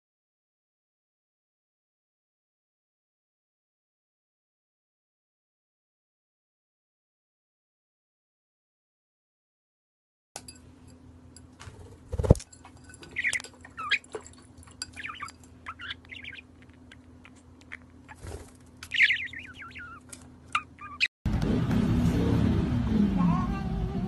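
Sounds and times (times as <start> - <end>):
parrot chirping: 13.0 - 21.1.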